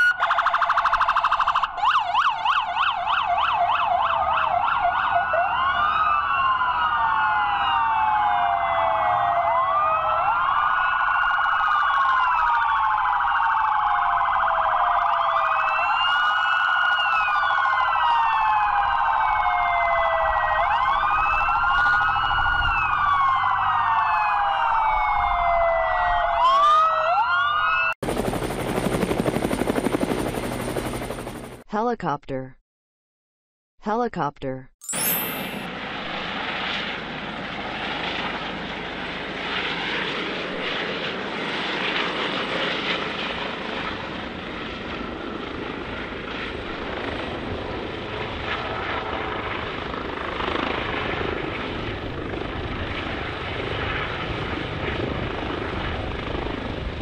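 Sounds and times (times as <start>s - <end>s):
police sirens wailing: 0.0s - 28.0s
helicopter rotor and engine: 26.9s - 31.6s, 34.8s - 57.0s.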